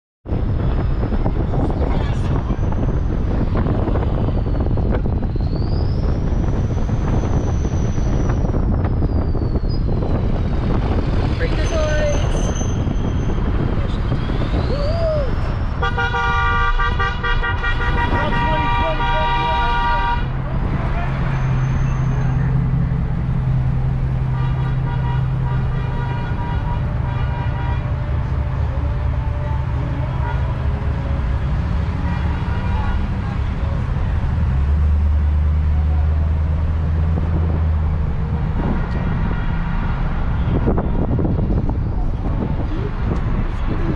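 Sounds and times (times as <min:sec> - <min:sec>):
wind buffeting microphone: 0:00.2 - 0:20.9, 0:33.0 - 0:43.9
road noise: 0:00.2 - 0:43.9
truck engines rumbling: 0:00.3 - 0:43.9
vehicle horn: 0:15.8 - 0:20.4, 0:24.2 - 0:33.4, 0:38.6 - 0:41.5.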